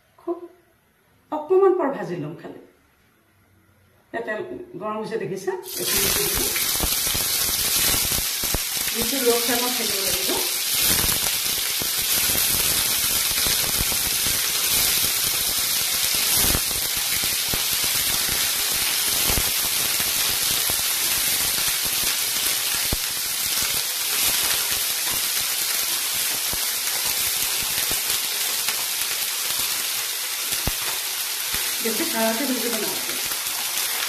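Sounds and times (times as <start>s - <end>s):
cheese frying in hot oil: 5.7s - 34.0s
faint clicks of cubes in pan: 10.5s - 31.8s.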